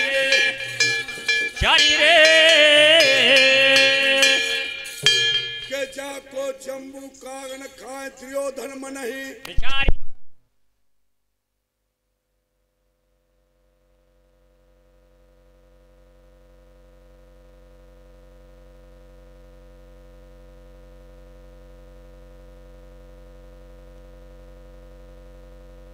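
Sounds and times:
electrical hum: 13.7s - 25.9s.

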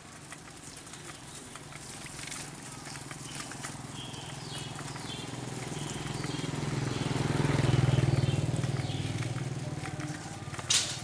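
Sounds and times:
vehicle engine humming: 0.0s - 11.0s
high bird chirps: 3.2s - 9.4s.

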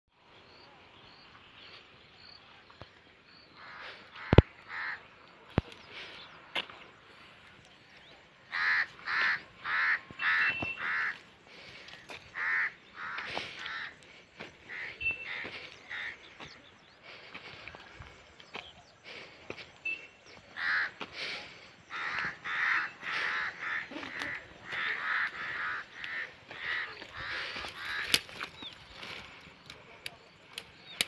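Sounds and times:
bird cawing: 3.5s - 6.3s, 8.4s - 16.6s, 19.1s - 29.8s.

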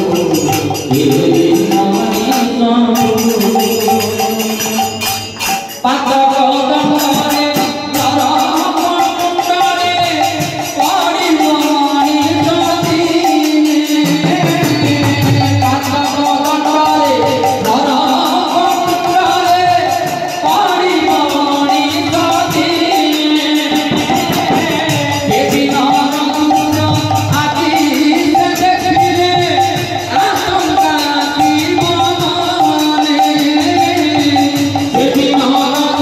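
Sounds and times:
man singing: 0.0s - 36.0s
metal jingling percussion: 0.0s - 36.0s.

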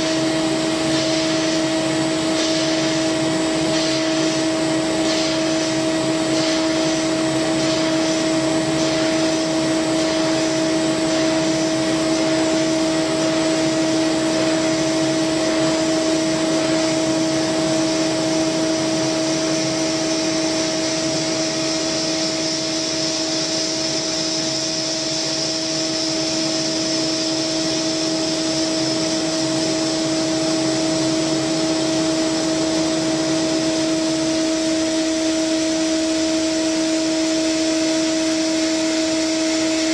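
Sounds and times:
hiss of cutting and coolant: 0.0s - 39.9s
milling spindle whine: 0.0s - 39.9s.

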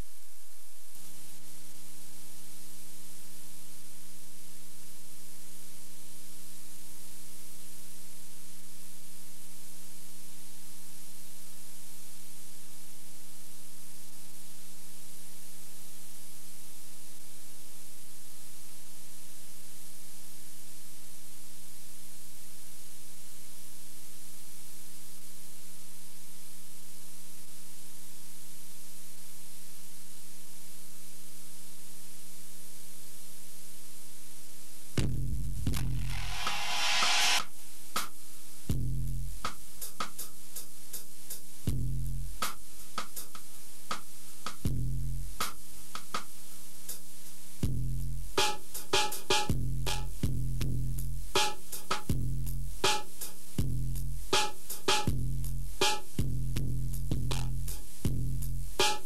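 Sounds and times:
loud even hiss: 35.9s - 37.6s.

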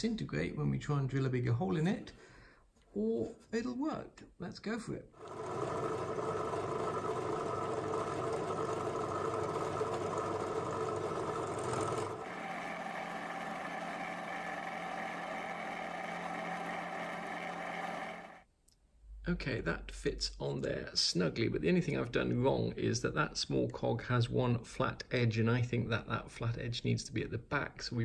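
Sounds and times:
drill press motor drilling: 5.2s - 18.4s.

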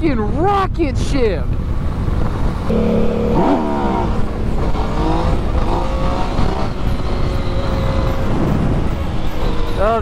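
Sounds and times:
wind rush on microphone: 0.0s - 2.7s, 4.4s - 10.0s
motorcycle engine slowing: 2.7s - 7.5s.

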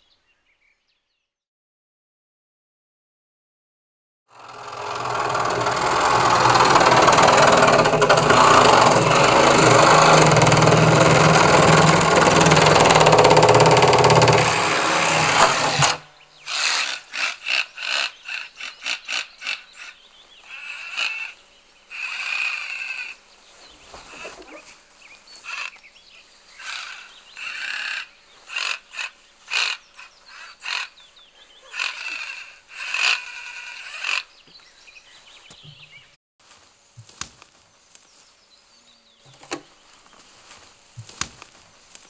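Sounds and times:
power tool cutting fibreglass: 4.3s - 19.3s.

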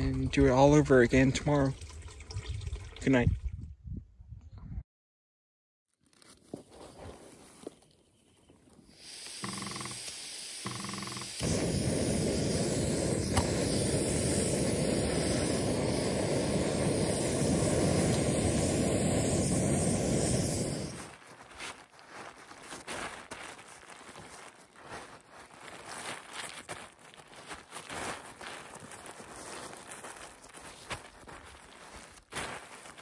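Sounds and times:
tent fabric rustling: 6.0s - 7.8s, 21.0s - 33.0s
camping stove burning hiss: 8.8s - 21.2s.

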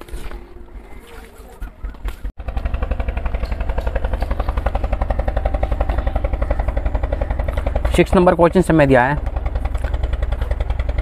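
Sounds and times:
engine chugging: 0.0s - 11.0s.

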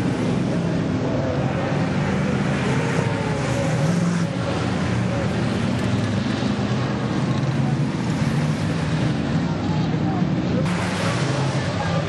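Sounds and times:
racing car engines droning: 0.0s - 12.0s
tyres hissing on wet track: 10.7s - 12.0s.

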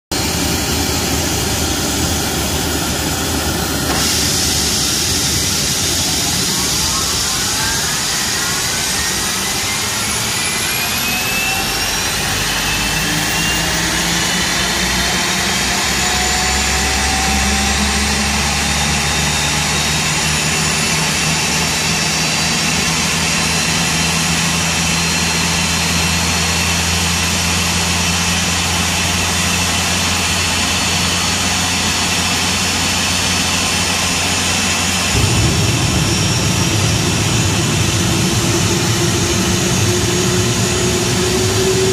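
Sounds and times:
jet engine whine: 0.1s - 41.9s
low rumble: 34.9s - 41.9s.

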